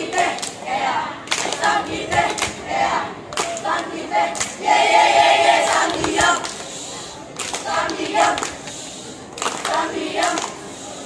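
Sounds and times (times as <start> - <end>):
hand claps: 0.1 - 0.6, 1.3 - 2.6, 3.3 - 4.6, 7.4 - 10.6.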